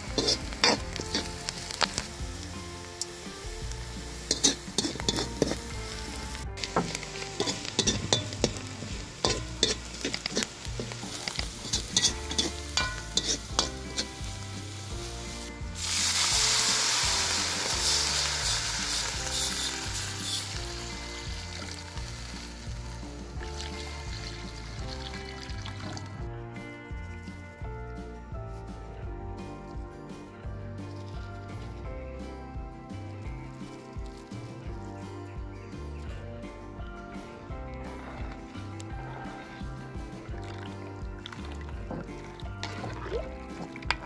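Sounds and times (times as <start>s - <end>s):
wooden spoon scraping a wok: 0.0s - 21.8s
water hissing in hot pan: 0.0s - 26.2s
spices frying and sizzling: 0.0s - 28.2s, 29.4s - 44.0s.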